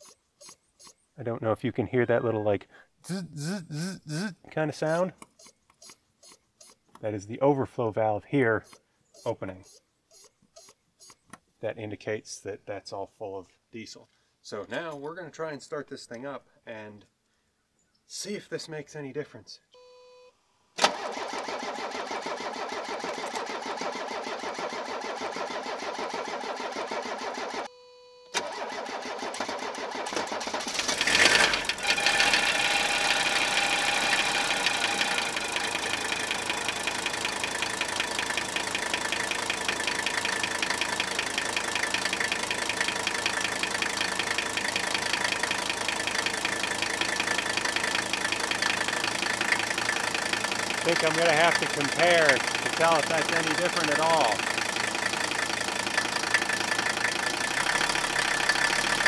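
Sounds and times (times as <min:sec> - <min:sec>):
diesel engine cranking: 0:20.8 - 0:27.7, 0:28.4 - 0:59.0
diesel engine idling with knock: 0:33.3 - 0:59.0.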